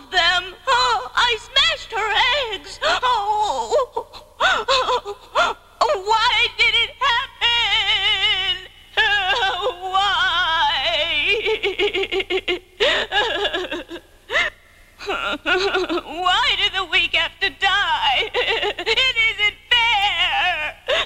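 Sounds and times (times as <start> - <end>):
cartoon character giggling: 11.2 - 14.0.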